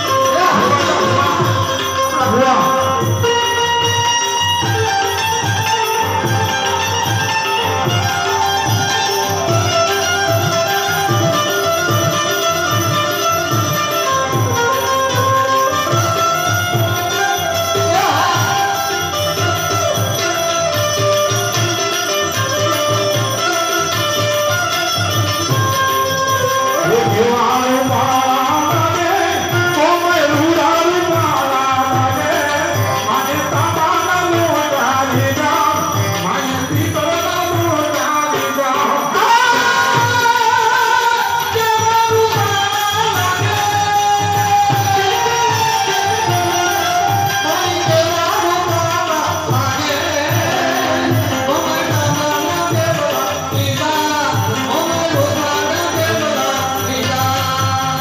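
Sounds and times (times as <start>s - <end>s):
steady drum beat: 0.0s - 3.4s, 47.8s - 57.1s
man singing into microphone: 0.0s - 13.9s, 15.7s - 20.3s, 26.4s - 58.0s
harmonium: 0.0s - 58.0s
jingling hand percussion: 0.0s - 58.0s.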